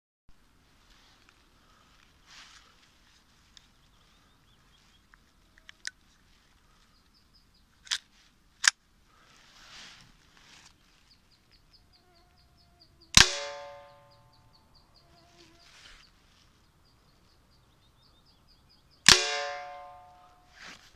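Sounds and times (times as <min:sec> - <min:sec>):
air pistol handling clicks: 0:07.8 - 0:08.8
sharp metallic clicks: 0:13.1 - 0:14.0, 0:19.0 - 0:20.2
air pistol shot crack: 0:13.2 - 0:14.0, 0:19.1 - 0:20.0
ringing bottle target: 0:13.2 - 0:14.1, 0:19.1 - 0:20.2.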